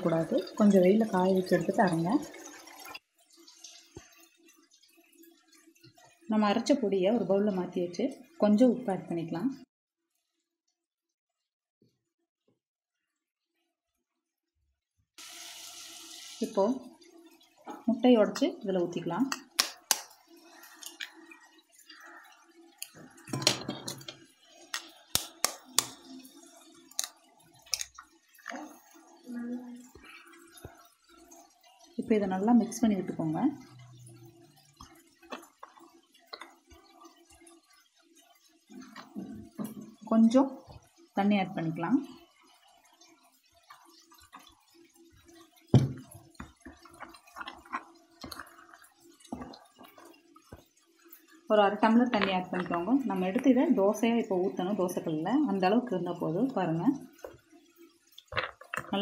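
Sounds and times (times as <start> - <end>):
water pouring: 0.0 - 9.6, 15.2 - 59.0
spoon stirring wet batter: 17.6 - 29.2, 29.9 - 40.9, 41.6 - 57.6
egg splashing into bowl: 19.2 - 21.2.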